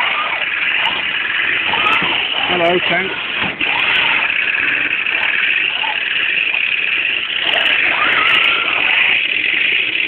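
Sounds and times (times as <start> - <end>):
toy tank motor hum: 0.0 - 10.0.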